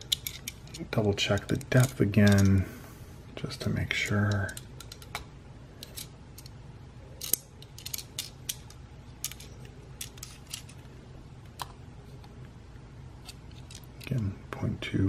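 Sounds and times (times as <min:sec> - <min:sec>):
metal caliper clicking and scraping: 0:00.0 - 0:02.6, 0:04.2 - 0:06.6, 0:07.2 - 0:10.9.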